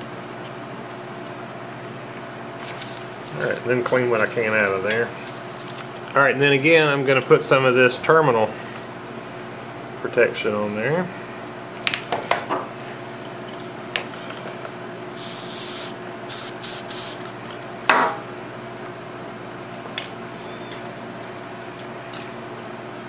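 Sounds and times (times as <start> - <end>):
aerosol can spraying: 15.2 - 17.2.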